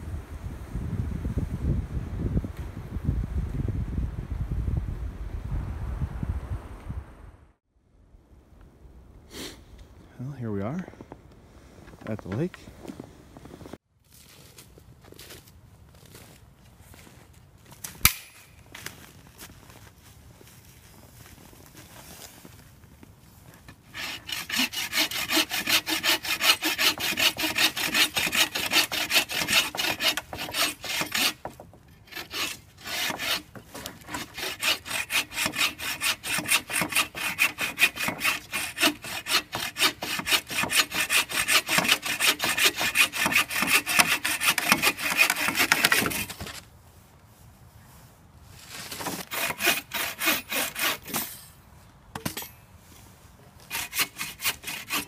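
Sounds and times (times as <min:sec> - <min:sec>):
hand saw cutting wood: 0:23.7 - 0:46.6, 0:48.8 - 0:51.4, 0:53.6 - 0:55.0.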